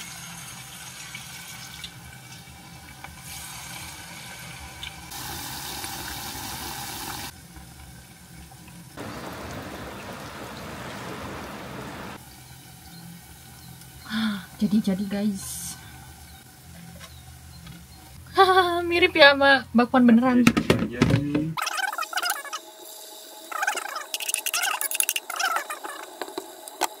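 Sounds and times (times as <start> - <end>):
batter deep-frying in hot oil: 0.0 - 9.3, 12.2 - 18.2.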